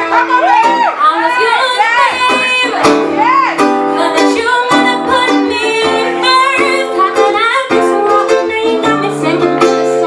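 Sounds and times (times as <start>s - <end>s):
woman singing with vibrato: 0.0s - 10.0s
plucked classical guitar: 2.0s - 10.0s.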